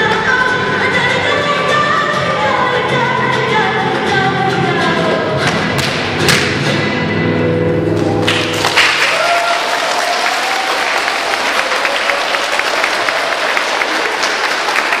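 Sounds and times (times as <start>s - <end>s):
flamenco music: 0.0s - 9.5s
audience clapping: 8.0s - 15.0s.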